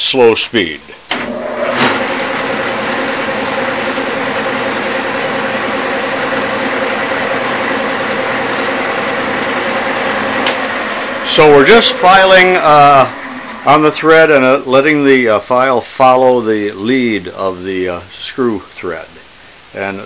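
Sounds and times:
metal lathe running: 1.3 - 14.3.

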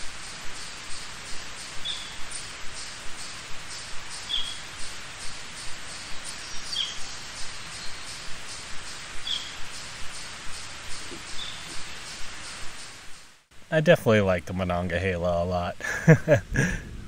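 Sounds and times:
high bird chirp: 0.9 - 4.9, 5.5 - 12.6.

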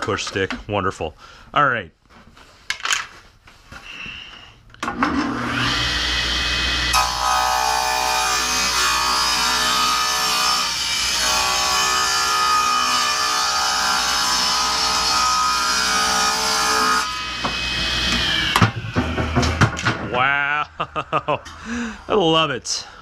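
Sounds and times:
table saw motor whining: 4.9 - 19.5
knocks: 17.4 - 20.2.

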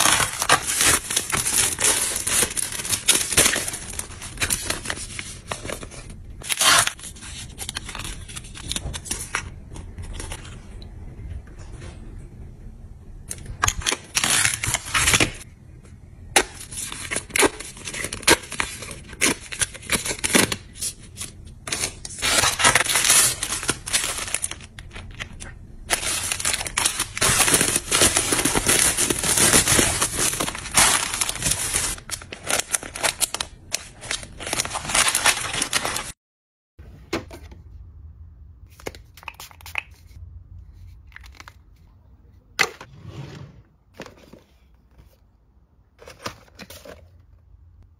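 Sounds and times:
packaging rustling and crinkling: 0.0 - 9.4, 16.7 - 36.2.

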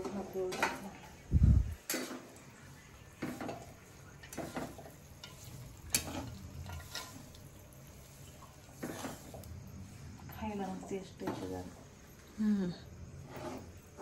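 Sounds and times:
faint sizzle: 0.0 - 14.0
spatula scraping a pan: 1.8 - 2.4, 3.0 - 10.1, 13.0 - 14.0.

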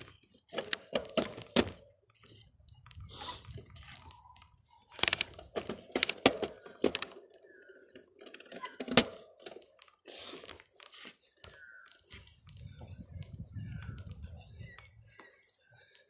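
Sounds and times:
bicycle jolting over bumpy grass: 0.0 - 1.8.

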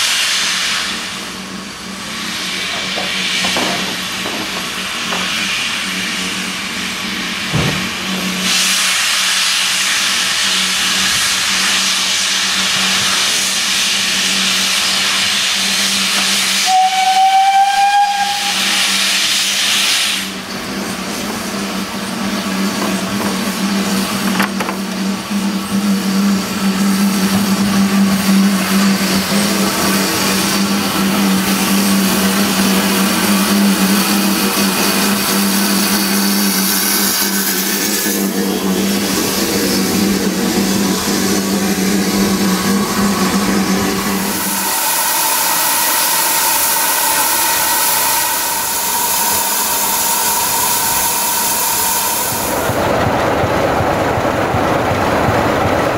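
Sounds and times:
steam locomotive hissing steam: 0.0 - 53.0
short train whistle: 16.5 - 19.2, 44.3 - 52.4.

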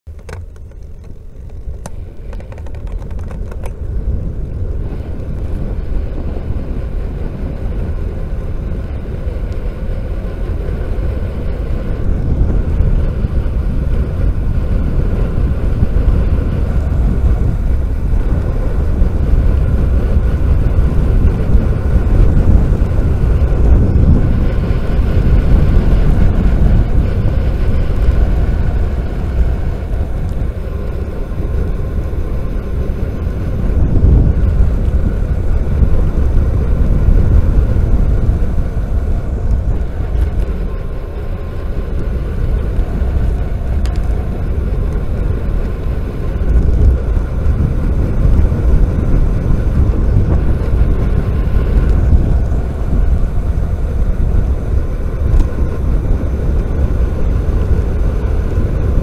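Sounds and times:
bicycle tyres on tarmac: 0.1 - 59.0
wind rushing over microphone: 0.1 - 59.0.

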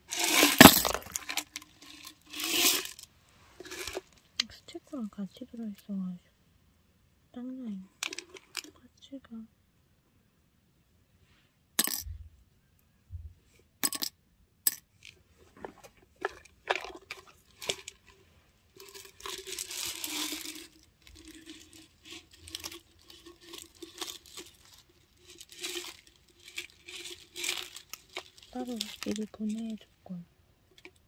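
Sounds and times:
plastic crinkling: 15.5 - 18.2, 18.8 - 29.8
small plastic parts clicking: 18.8 - 29.7.

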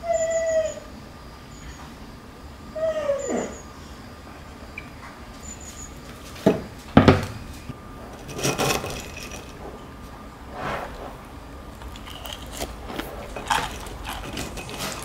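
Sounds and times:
dog whining: 0.0 - 2.0, 2.7 - 3.8
spoon scraping ceramic bowl: 12.1 - 15.0.

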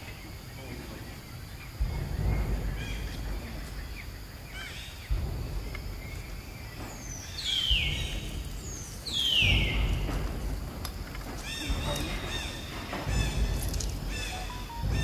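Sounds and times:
animal chirps: 14.1 - 15.0.

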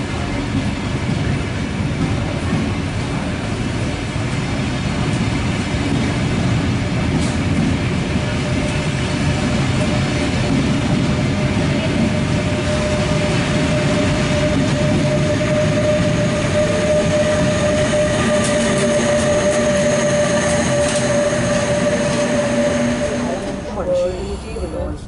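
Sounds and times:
train coaches rumbling past: 0.0 - 25.0
sustained high tone: 12.2 - 25.0.

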